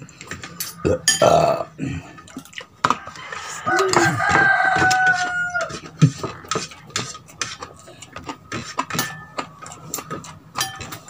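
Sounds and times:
cutlery clinking on dishes: 0.2s - 1.5s, 2.4s - 11.0s
rooster crowing: 2.9s - 5.9s.

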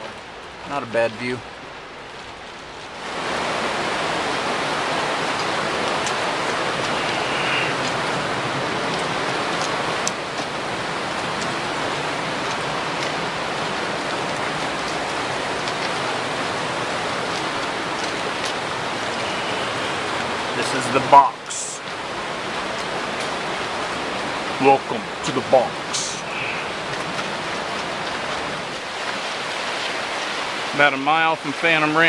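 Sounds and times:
fast-flowing creek rushing: 0.0s - 32.0s.

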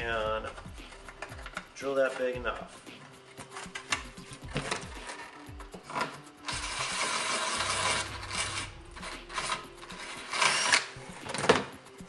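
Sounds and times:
drill cutting through fiberglass: 6.5s - 8.7s.

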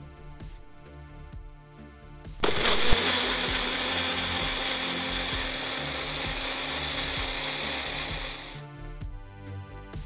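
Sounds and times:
blender running: 2.4s - 8.6s.

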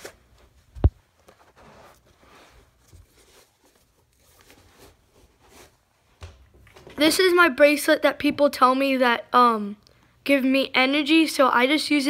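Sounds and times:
shoes rustling and shuffling: 0.0s - 7.0s.

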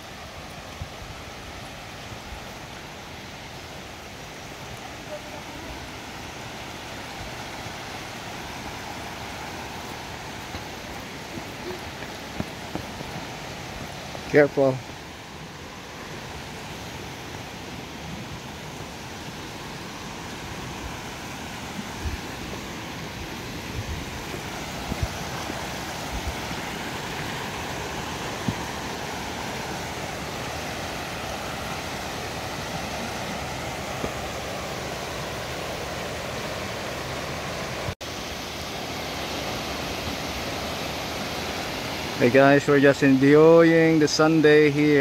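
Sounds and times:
creek water rushing over rocks: 0.0s - 45.0s.

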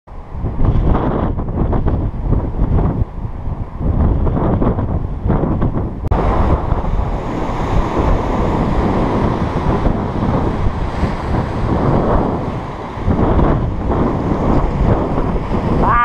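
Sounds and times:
wind buffeting microphone: 0.1s - 16.0s
small waves breaking on beach: 6.1s - 15.8s.

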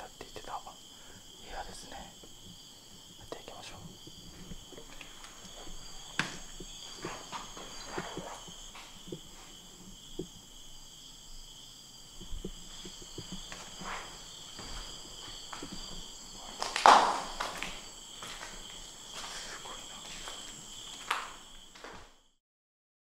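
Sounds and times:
crickets chirring: 0.0s - 22.4s
footsteps on debris: 4.2s - 10.3s, 12.2s - 22.1s
loud crunch: 12.8s - 22.1s.

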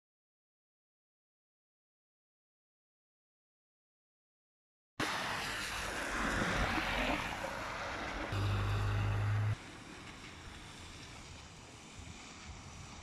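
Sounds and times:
outdoor street noise: 5.0s - 13.0s
steady low hum: 8.3s - 9.6s.

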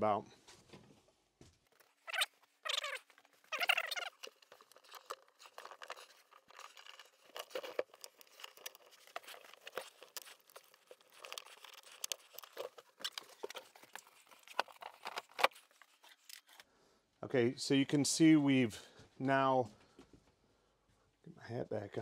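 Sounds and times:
rustling: 0.4s - 16.7s.

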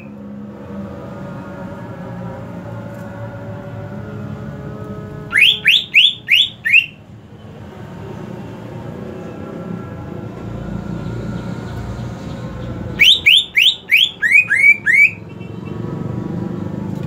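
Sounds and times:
bird whistling upward notes: 5.3s - 7.0s, 12.9s - 15.7s.

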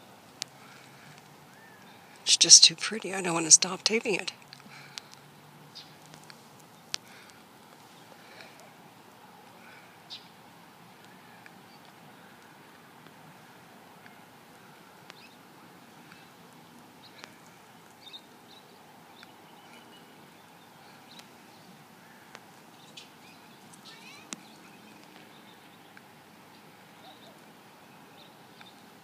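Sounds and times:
steady low hiss: 0.0s - 29.0s
bird chirps: 22.8s - 25.6s.

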